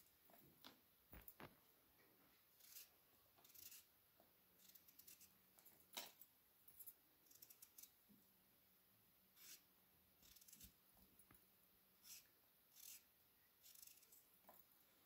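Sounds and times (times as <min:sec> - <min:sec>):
knife cutting potatoes: 0:02.6 - 0:03.9, 0:09.4 - 0:10.8, 0:12.0 - 0:14.3.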